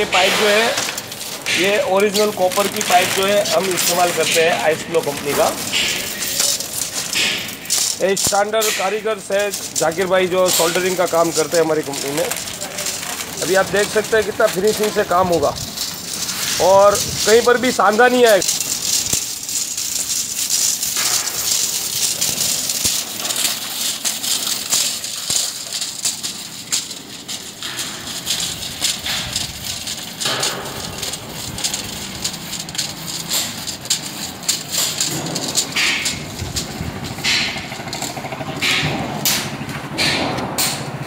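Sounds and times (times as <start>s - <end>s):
steady high hiss: 0.0s - 36.2s
copper pipe coils rattling: 0.0s - 41.0s.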